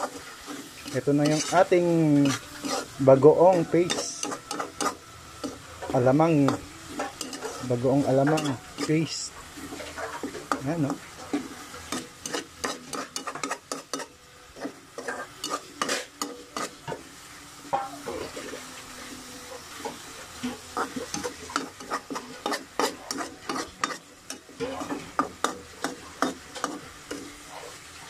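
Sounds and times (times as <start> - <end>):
metal spoon scraping a pan: 0.0 - 17.1, 17.7 - 27.9
light sizzle: 0.0 - 28.0.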